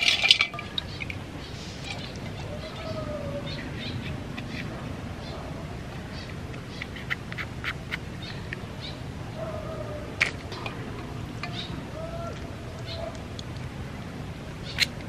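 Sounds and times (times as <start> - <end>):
animal call: 1.5 - 6.3, 8.8 - 13.3.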